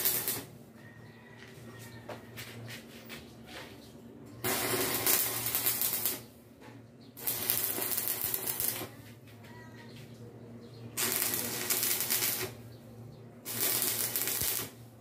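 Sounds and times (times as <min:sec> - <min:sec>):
welding arc crackling: 0:00.0 - 0:00.5, 0:04.4 - 0:06.3, 0:07.2 - 0:09.0, 0:11.0 - 0:12.7, 0:13.4 - 0:14.9.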